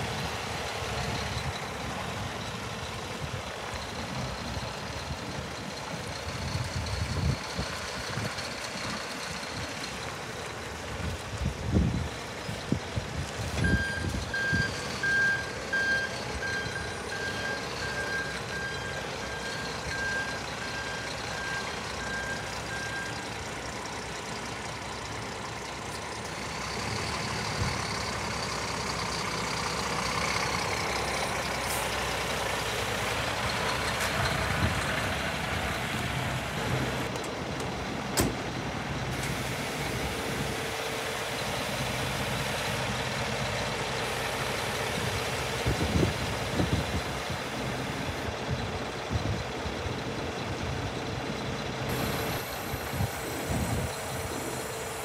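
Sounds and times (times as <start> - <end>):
truck diesel engine running: 0.0 - 55.0
back-up alarm beeping: 13.6 - 23.3.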